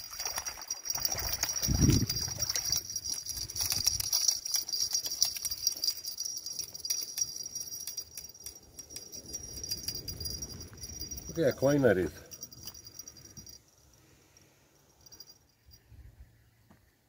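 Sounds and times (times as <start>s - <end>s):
water splashing: 0.0s - 6.6s
high-pitched ringing: 0.0s - 16.0s.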